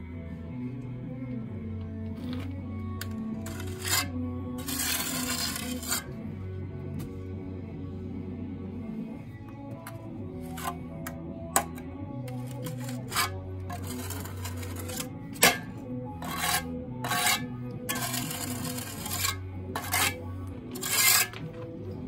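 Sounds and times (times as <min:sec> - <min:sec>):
background music: 0:00.0 - 0:22.0
scraping on concrete block: 0:02.2 - 0:06.2, 0:09.9 - 0:21.7.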